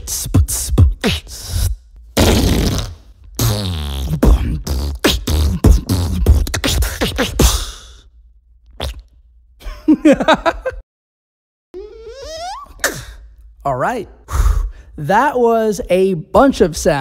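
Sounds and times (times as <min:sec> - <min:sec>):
whoopie cushion buzzing: 0:00.0 - 0:07.6, 0:11.8 - 0:13.0
beatboxer imitating a buzz: 0:00.0 - 0:08.0, 0:11.8 - 0:13.2.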